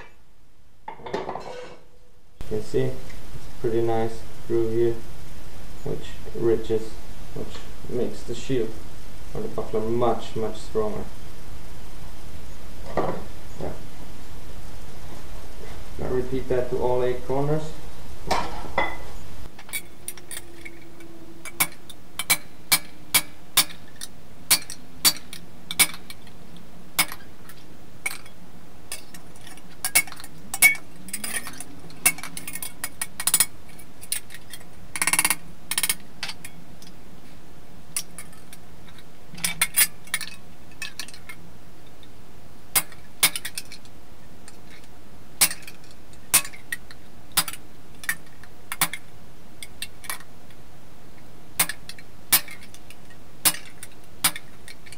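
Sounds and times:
hammer striking metal sheet: 0:24.5 - 0:26.0.

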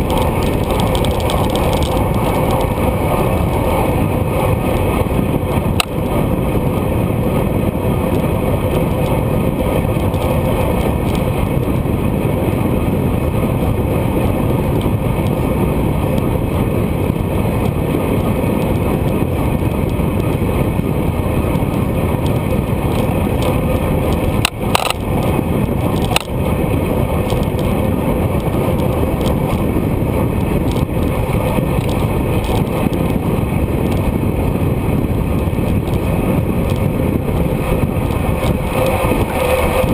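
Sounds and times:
sharp clicks: 0:00.0 - 0:02.8, 0:22.9 - 0:25.1
wind noise on microphone: 0:00.0 - 0:39.9.

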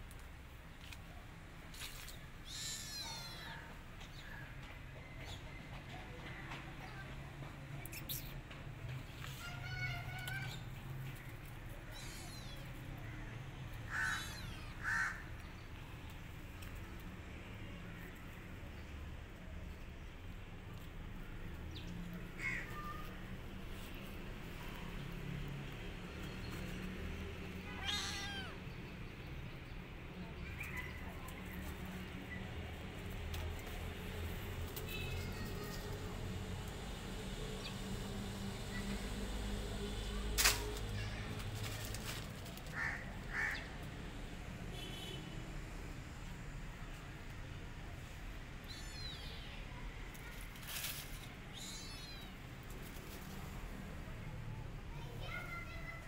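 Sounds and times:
kitten meowing: 0:02.4 - 0:03.6, 0:11.9 - 0:12.7, 0:14.0 - 0:14.8, 0:27.7 - 0:28.6
small animal high calls: 0:02.4 - 0:03.7, 0:13.9 - 0:15.3, 0:27.8 - 0:28.6
dry leaves crunching: 0:40.3 - 0:43.5.

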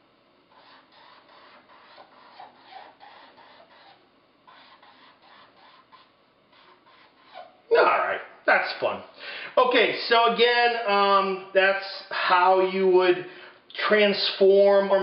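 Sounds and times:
marker scratching on paper: 0:00.5 - 0:07.4.

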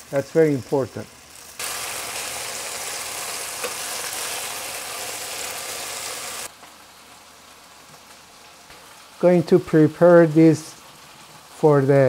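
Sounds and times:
okra sizzling in oil: 0:00.0 - 0:12.0.

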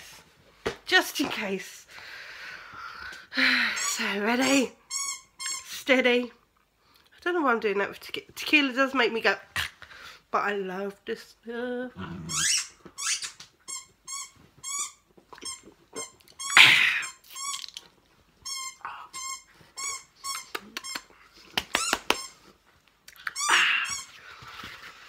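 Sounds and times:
squeaky toy squeaking: 0:03.8 - 0:05.9, 0:12.3 - 0:17.8, 0:18.4 - 0:21.1, 0:21.7 - 0:22.5, 0:23.3 - 0:24.1.

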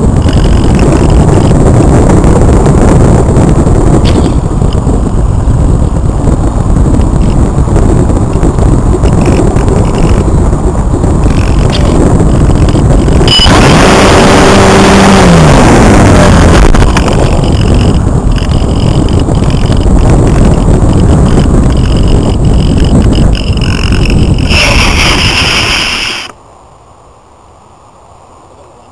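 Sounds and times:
wind rush buffeting microphone: 0:00.0 - 0:26.4
electric motor whine: 0:11.2 - 0:26.4.

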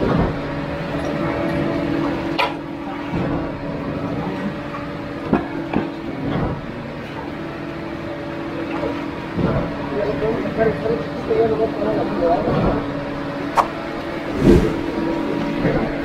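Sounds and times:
engine hum: 0:05.9 - 0:16.0.

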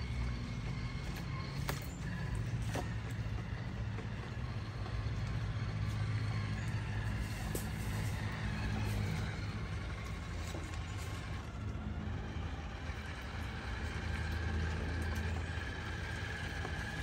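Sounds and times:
electric motors and gearboxes running: 0:00.0 - 0:17.0
rc cars driving through water: 0:07.8 - 0:17.0.

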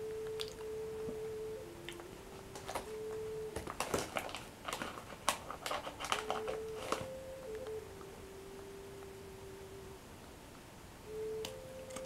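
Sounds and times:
woman humming: 0:00.0 - 0:03.8.

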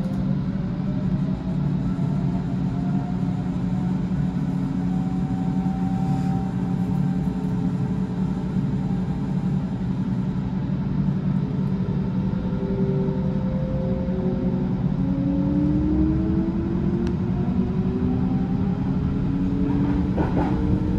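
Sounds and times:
train wheels rumbling: 0:18.3 - 0:20.9.

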